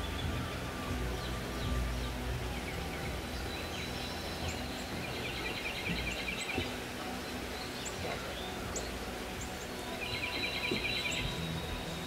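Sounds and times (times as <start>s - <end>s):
birds chirping: 0.0s - 12.0s
bird trill: 7.5s - 12.0s.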